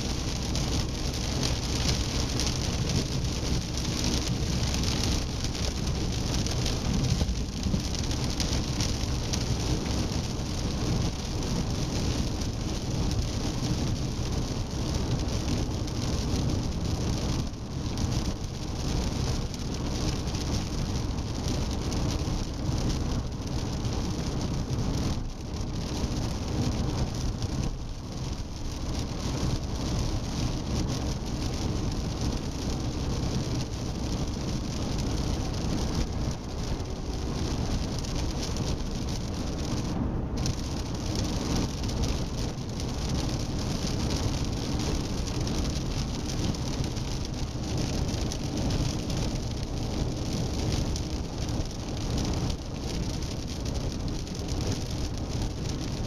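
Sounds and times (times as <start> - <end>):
car tyre and road noise: 0.0 - 56.0.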